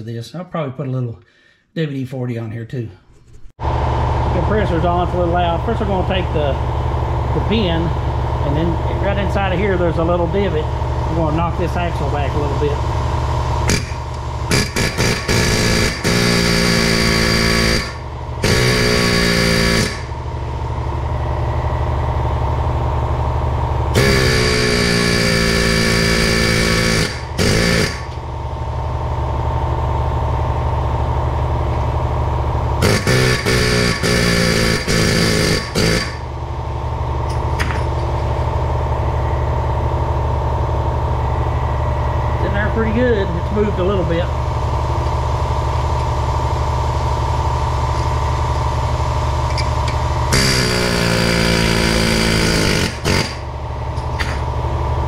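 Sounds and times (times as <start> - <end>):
air compressor drone: 3.1 - 55.0
pneumatic air hammer bursts: 13.6 - 20.2, 24.0 - 28.2, 32.8 - 36.3, 49.5 - 54.4.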